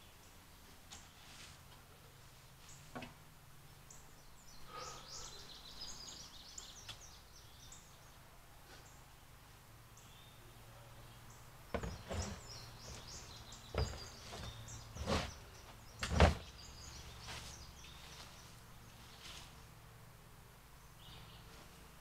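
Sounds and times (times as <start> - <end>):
dump bin knocking and banging: 11.7 - 13.0, 13.7 - 15.3.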